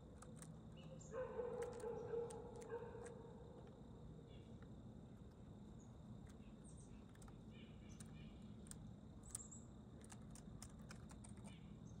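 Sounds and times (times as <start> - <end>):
soft high bird chirps: 0.7 - 2.2, 5.7 - 8.6, 9.2 - 9.8.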